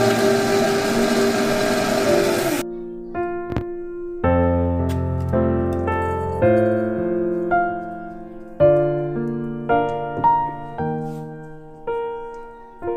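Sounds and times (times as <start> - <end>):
slow piano music: 0.0 - 12.9.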